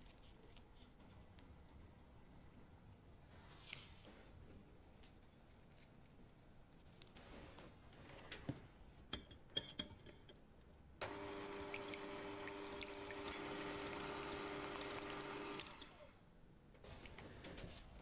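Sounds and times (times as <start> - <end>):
electric hand mixer whisking: 11.0 - 16.1.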